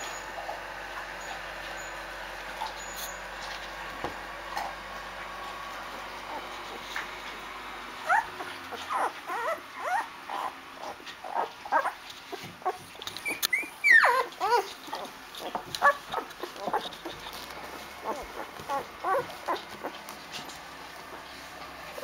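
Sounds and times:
puppies whimpering and squeaking: 2.6 - 3.3, 8.0 - 21.4.

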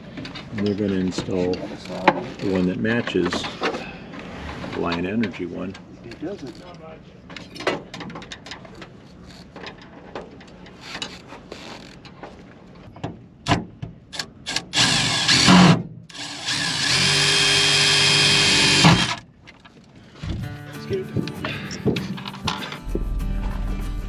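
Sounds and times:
cordless drill whining: 14.5 - 19.2
handling knocks and clicks: 21.2 - 23.6.

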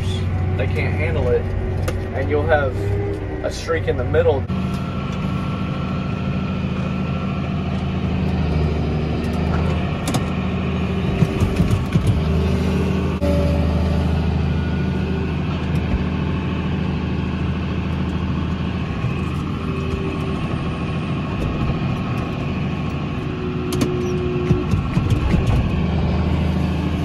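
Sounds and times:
tractor diesel engine running: 0.0 - 27.0
sharp clicks and knocks: 9.2 - 10.4, 11.1 - 12.3, 23.7 - 25.8.

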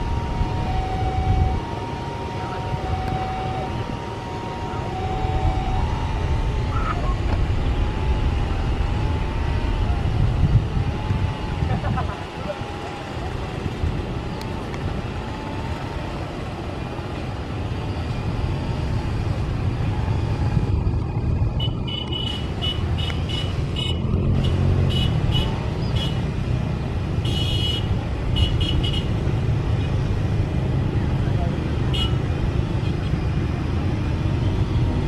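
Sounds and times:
jet engines rumbling: 0.0 - 27.2.

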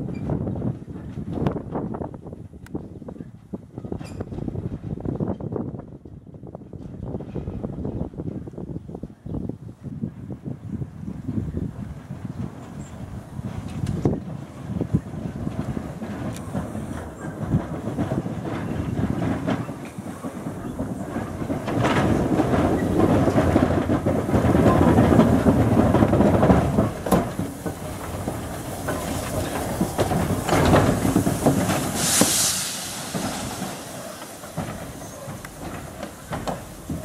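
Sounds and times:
locomotive wheels rumbling: 0.0 - 37.0
clicks over rail joints: 12.4 - 32.3, 33.0 - 37.0
steam hissing: 16.0 - 37.0.

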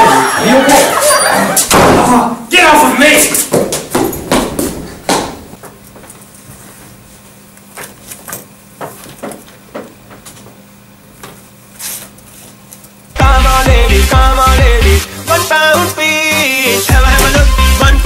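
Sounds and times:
electronic dance music: 0.0 - 1.6, 13.2 - 18.0
papers rustling: 7.6 - 9.6.

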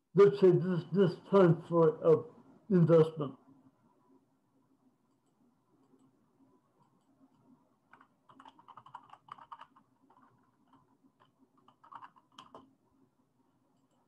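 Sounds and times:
faint keyboard typing: 3.9 - 14.0.

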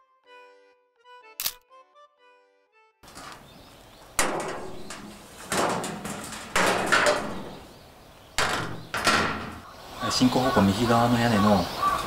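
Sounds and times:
metal roofing panels clattering: 3.0 - 9.8.

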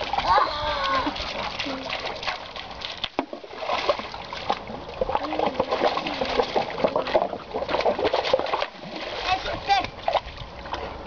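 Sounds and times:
dog splashing in water: 0.0 - 9.4
running stream: 0.0 - 11.0.

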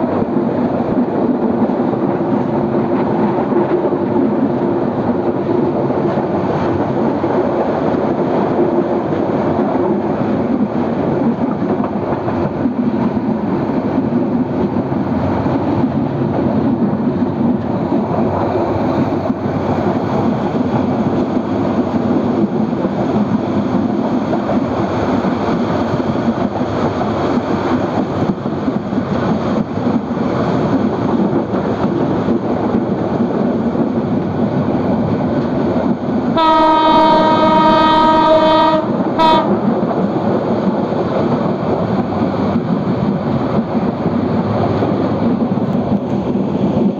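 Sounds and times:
train wheels rumbling on rails: 0.0 - 46.9
train horn: 36.4 - 39.6.

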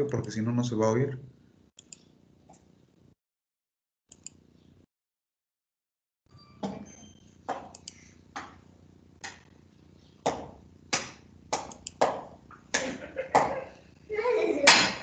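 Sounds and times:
computer mouse clicking: 1.8 - 2.1, 4.1 - 4.4, 7.7 - 8.0, 11.6 - 12.0
faint chime: 6.3 - 7.3.

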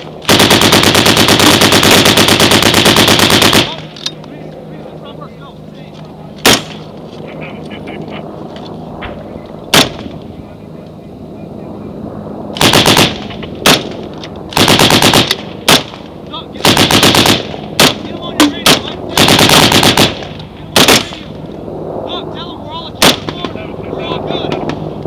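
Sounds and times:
automatic gunfire: 0.2 - 3.8, 12.6 - 13.9, 14.5 - 16.0, 16.6 - 18.0, 18.6 - 21.2.

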